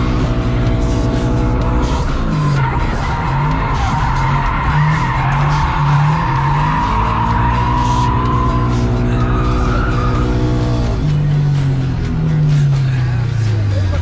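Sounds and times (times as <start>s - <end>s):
car engine at high revs: 0.0s - 14.0s
tyres squealing: 1.8s - 10.3s.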